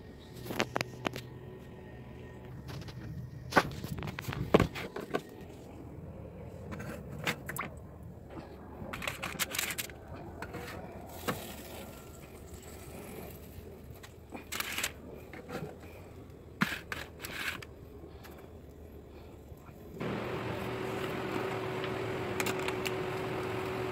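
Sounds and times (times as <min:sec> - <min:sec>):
handling knocks clicks and scrapes: 0:02.7 - 0:05.6, 0:08.9 - 0:11.5, 0:14.0 - 0:18.4, 0:20.0 - 0:23.8.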